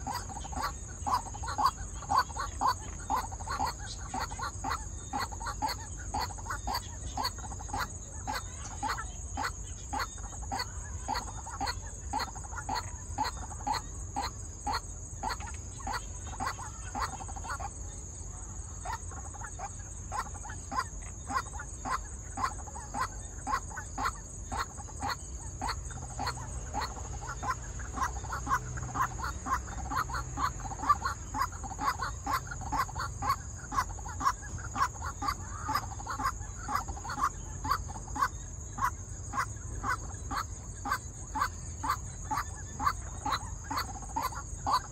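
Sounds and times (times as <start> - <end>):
waterhens croaking: 0.0 - 44.9.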